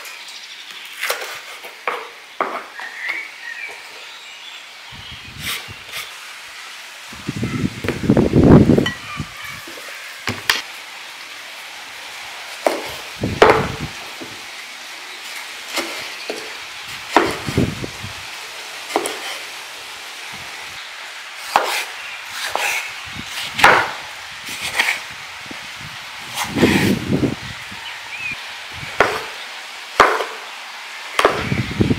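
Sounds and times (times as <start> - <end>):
knife slicing onto wooden board: 18.9 - 19.4.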